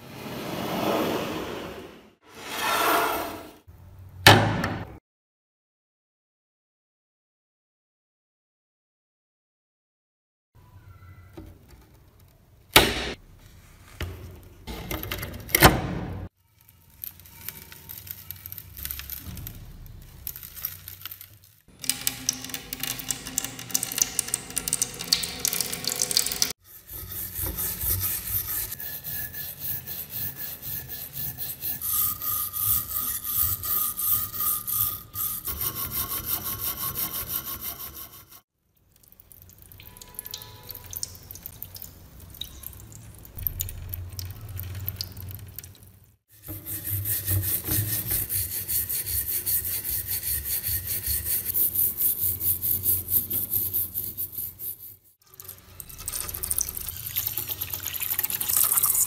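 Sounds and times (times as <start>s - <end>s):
hand tools rasping on steel: 26.6s - 38.4s, 46.4s - 55.1s.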